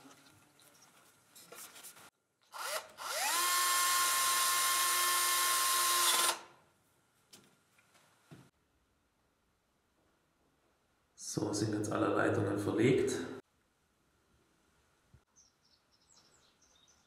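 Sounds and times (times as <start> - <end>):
handling and rubbing: 0.0 - 2.2
cordless drill whining: 2.4 - 6.5.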